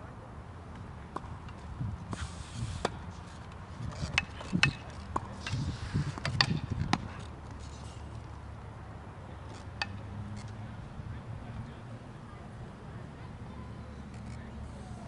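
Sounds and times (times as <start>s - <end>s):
tennis racket strikes: 3.8s - 7.2s.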